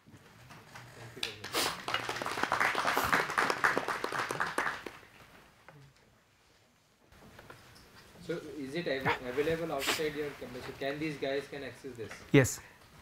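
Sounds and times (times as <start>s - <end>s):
audience applauding: 0.7s - 5.1s.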